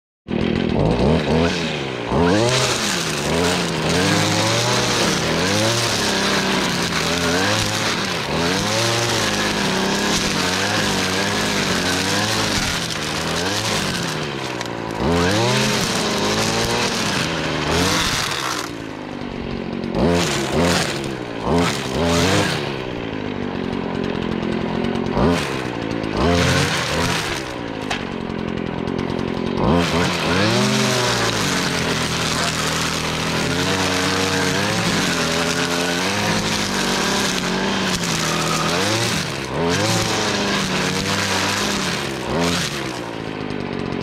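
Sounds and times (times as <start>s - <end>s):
string trimmer engine revving: 0.3s - 44.0s.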